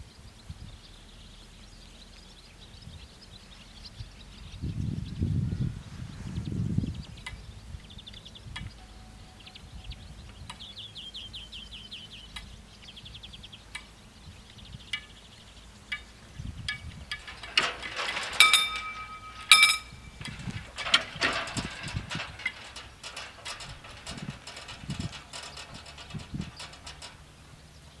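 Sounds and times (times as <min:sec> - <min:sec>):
faint bird trills: 0:07.2 - 0:20.3
barrier booms clicking and clanking: 0:16.7 - 0:28.0.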